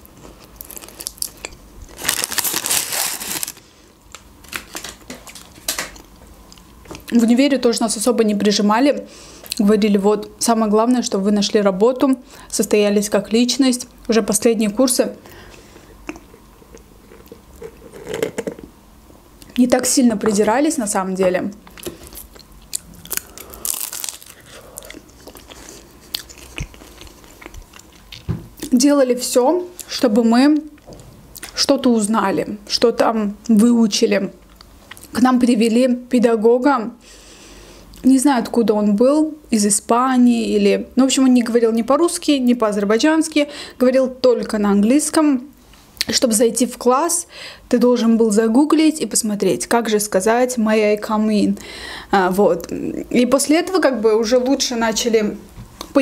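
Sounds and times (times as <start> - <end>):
crisp crust crunch: 0.2 - 6.1, 21.8 - 28.3
paper packaging crinkling: 0.5 - 6.0, 23.1 - 24.6
chewing with mouth clicks: 16.0 - 18.7, 21.6 - 28.7.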